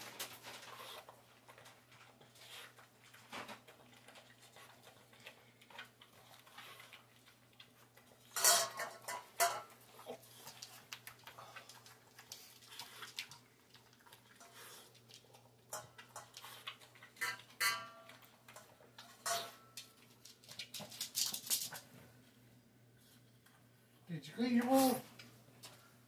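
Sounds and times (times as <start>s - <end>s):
dog bowl clanking: 8.3s - 9.9s, 15.2s - 19.9s.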